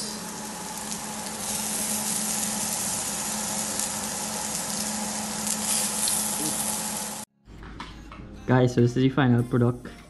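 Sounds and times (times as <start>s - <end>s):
fish sizzling on a grill pan: 0.0s - 7.3s.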